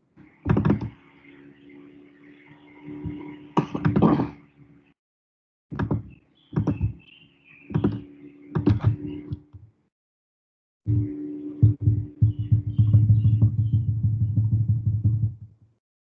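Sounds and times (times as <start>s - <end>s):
mouse and keyboard clicks: 7.7s - 9.6s
steady low hum: 10.9s - 15.4s.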